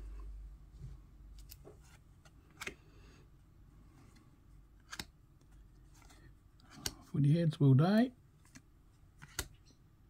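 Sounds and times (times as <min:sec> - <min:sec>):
cards being flipped: 0:04.8 - 0:07.0, 0:08.4 - 0:09.7.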